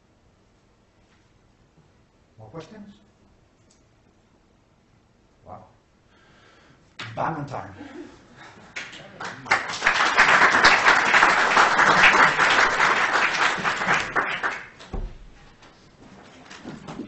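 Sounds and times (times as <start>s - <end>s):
audience applauding: 8.7s - 15.0s.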